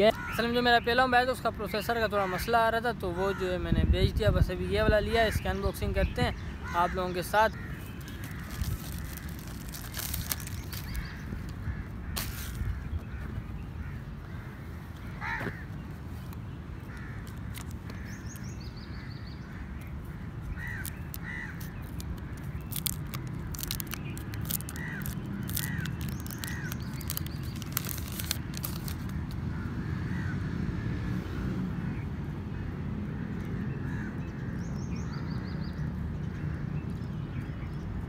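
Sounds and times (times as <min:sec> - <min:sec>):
crows cawing: 0:00.0 - 0:00.5, 0:06.5 - 0:15.8, 0:16.8 - 0:28.6, 0:29.5 - 0:30.9, 0:33.1 - 0:34.2.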